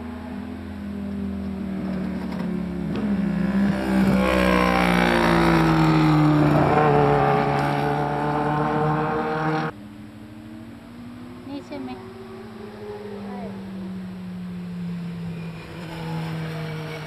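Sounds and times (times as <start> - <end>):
motorcycle engines revving past: 0.0 - 17.0.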